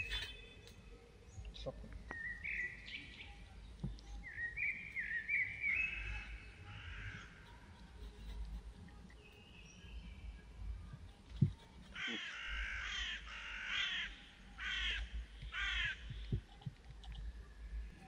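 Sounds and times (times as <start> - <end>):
crow cawing: 12.0 - 16.0.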